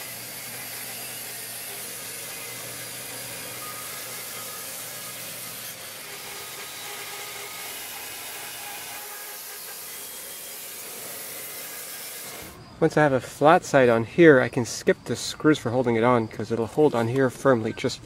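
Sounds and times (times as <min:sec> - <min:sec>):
bandsaw blade cutting wood: 0:00.0 - 0:12.6.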